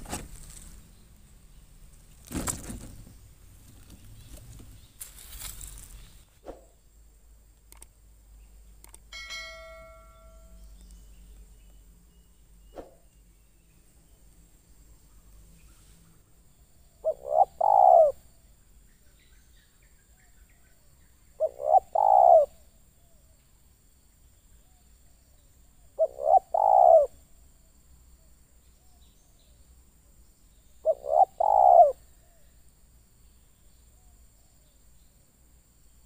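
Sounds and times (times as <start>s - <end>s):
dove cooing: 17.0s - 18.2s, 21.4s - 22.6s, 26.0s - 27.2s, 30.8s - 32.5s.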